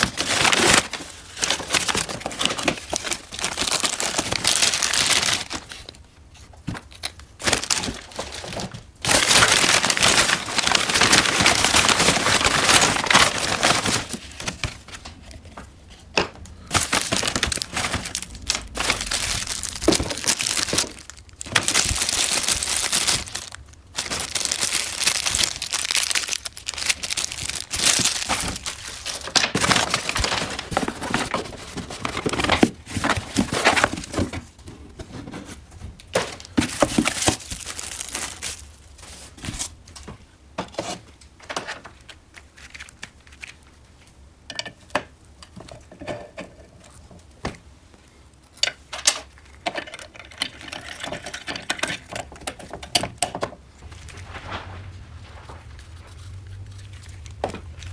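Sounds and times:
packing paper and plastic bags rustling: 0.0 - 43.8, 53.6 - 57.9.

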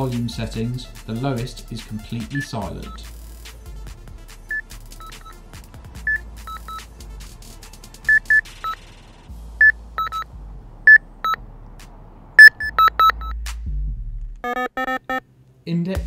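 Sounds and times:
bite alarm beeping at two pitches: 12.4 - 13.3.

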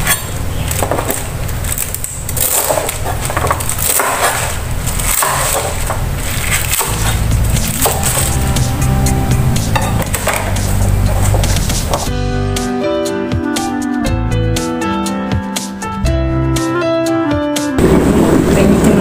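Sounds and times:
knife chopping greens on board: 2.4 - 8.4.

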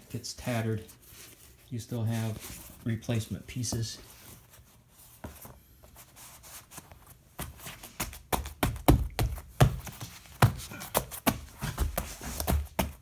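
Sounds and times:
hand slapping foam mats: 7.4 - 13.0.

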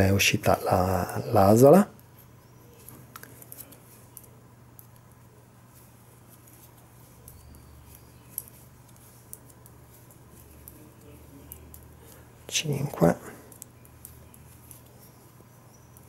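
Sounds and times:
low steady hum: 0.0 - 16.0
knitting needles clicking: 2.8 - 5.2, 6.3 - 12.3, 13.5 - 16.0.

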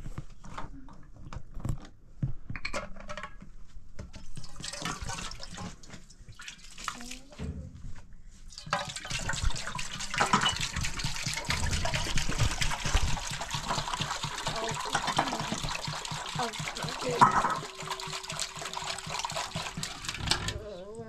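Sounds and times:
water splashing and trickling: 4.3 - 7.5, 8.5 - 21.0.

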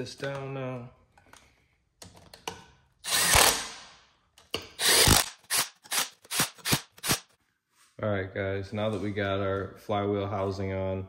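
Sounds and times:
power tool driving bolts: 3.0 - 7.3.

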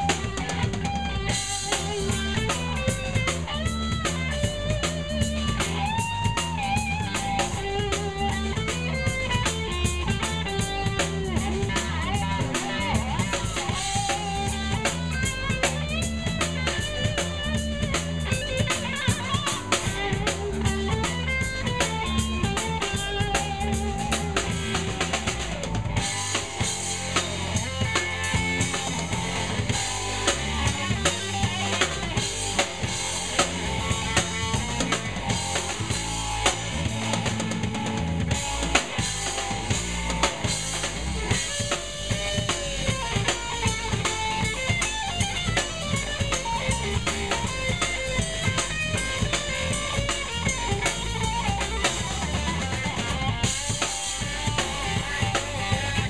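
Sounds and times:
bass guitar: 0.0 - 56.0
drum kit: 0.0 - 56.0
electric guitar: 0.0 - 56.0.

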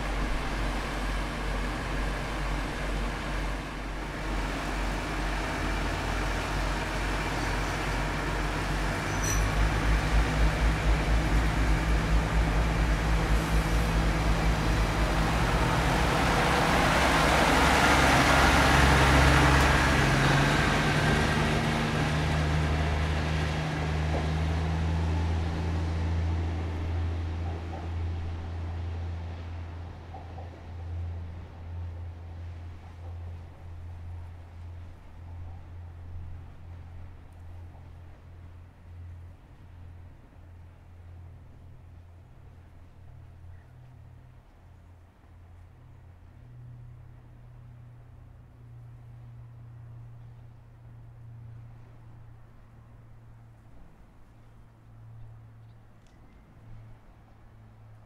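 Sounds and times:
train wheel noise: 0.0 - 41.7
diesel railcar engine: 0.0 - 58.0.

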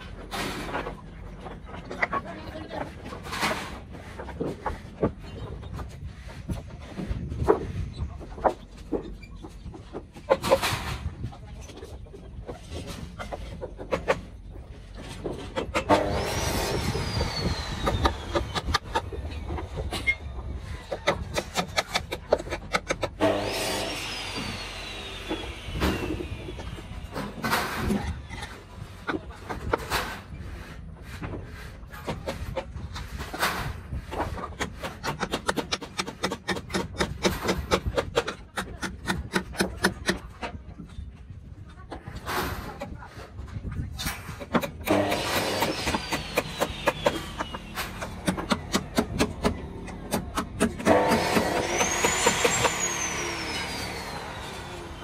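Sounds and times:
engine with descending whine: 16.2 - 20.8, 23.5 - 27.4, 51.1 - 55.0
hammer nailing timber boards: 20.9 - 28.1, 33.3 - 40.5, 44.3 - 54.5.

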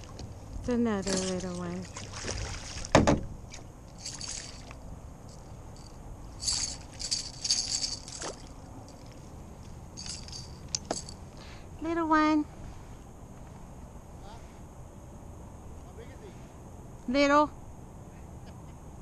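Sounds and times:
fish thrashing and splashing: 1.0 - 2.9, 4.0 - 4.8, 7.6 - 9.1.

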